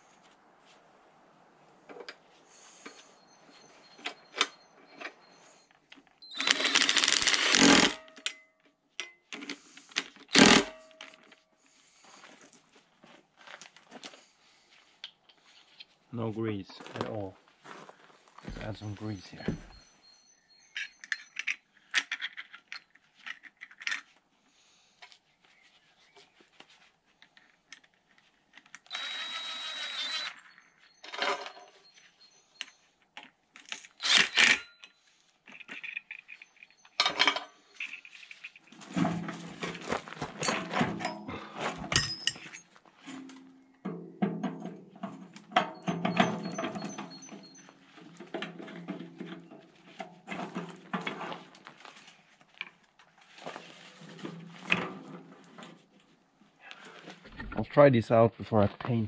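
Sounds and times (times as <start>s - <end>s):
clicks and knocks on metal parts: 35.5s - 38.6s, 43.2s - 47.5s.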